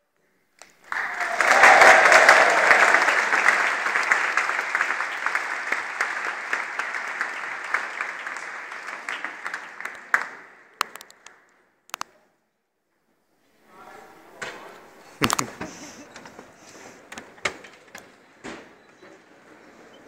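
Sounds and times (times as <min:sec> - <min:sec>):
audience applauding: 0:00.6 - 0:11.1, 0:15.2 - 0:16.3.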